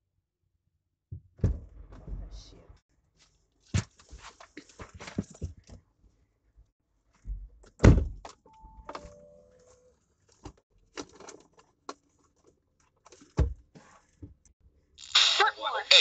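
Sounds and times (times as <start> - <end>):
car door opening thump: 7.8 - 8.2
clicks and rustles: 10.3 - 13.4.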